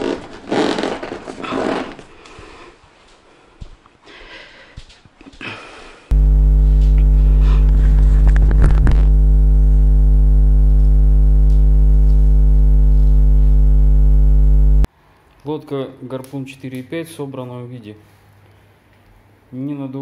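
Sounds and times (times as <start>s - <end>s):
electrical hum: 6.1s - 14.9s.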